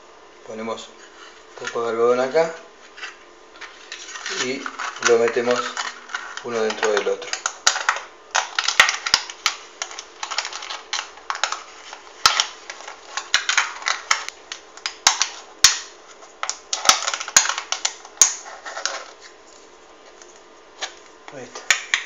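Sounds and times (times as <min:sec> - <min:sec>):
aluminium can crinkling and clicking: 0:03.6 - 0:19.2.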